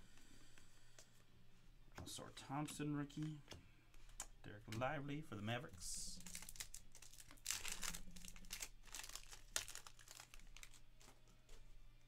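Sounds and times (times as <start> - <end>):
sharp crackle: 6.0 - 11.2
plastic wrapper crinkling and tearing: 6.0 - 11.6.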